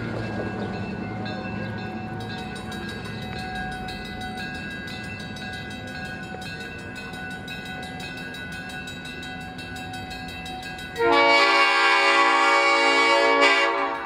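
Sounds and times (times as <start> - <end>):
train rumbling: 0.0 - 14.0.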